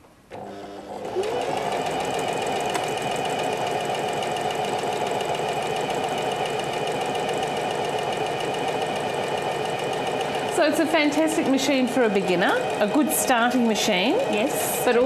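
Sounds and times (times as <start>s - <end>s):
electric sewing machine sewing: 0.3s - 15.0s.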